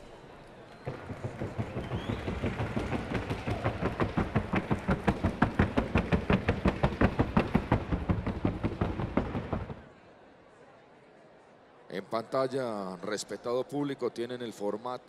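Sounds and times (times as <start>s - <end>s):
hoofbeats on wooden board: 0.9s - 9.8s.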